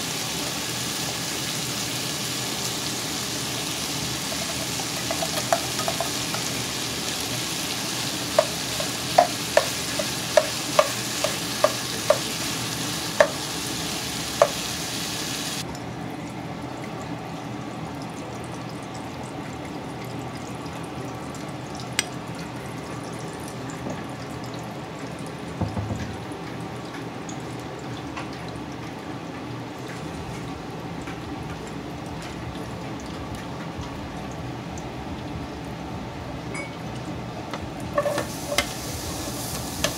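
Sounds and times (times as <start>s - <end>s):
oil hissing in pot: 0.0s - 15.6s, 38.0s - 39.9s
vegetables sizzling in a pot: 0.0s - 15.6s, 38.0s - 39.9s
metal can knocking on pot rim: 4.4s - 6.5s, 8.4s - 12.3s, 25.6s - 26.2s.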